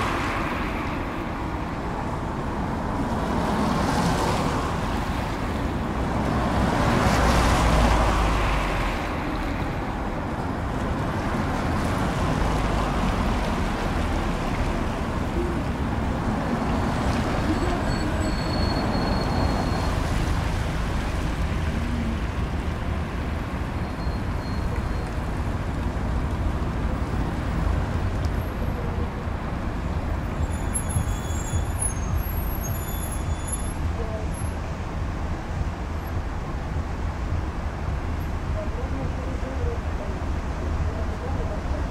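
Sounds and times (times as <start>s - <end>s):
cars passing on a street: 0.0s - 41.9s.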